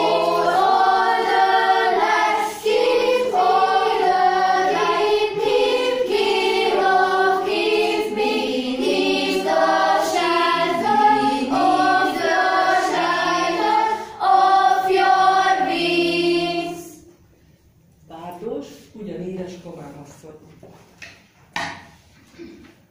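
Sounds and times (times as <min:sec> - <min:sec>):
girls choir singing: 0:00.0 - 0:17.2.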